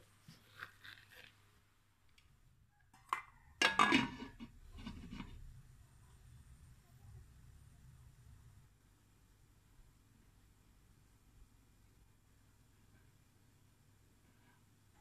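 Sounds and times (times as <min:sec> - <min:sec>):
glass lid clattering on pot: 0:03.1 - 0:04.5.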